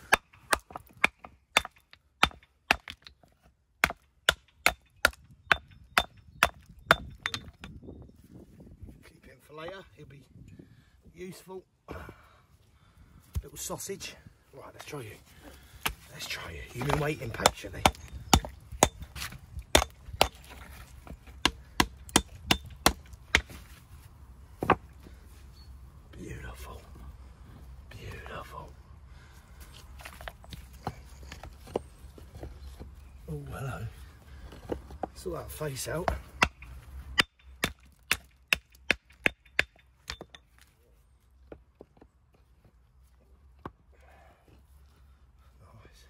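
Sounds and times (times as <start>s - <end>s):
hammer striking stone: 0.0s - 3.1s, 3.8s - 7.7s, 16.8s - 19.1s, 19.7s - 20.5s.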